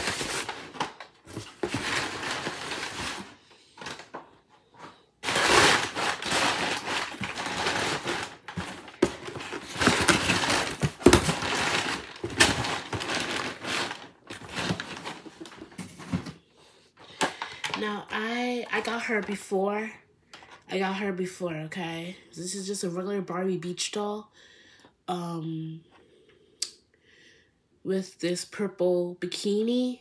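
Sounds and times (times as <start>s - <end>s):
packaging rustling and crinkling: 0.0s - 16.4s.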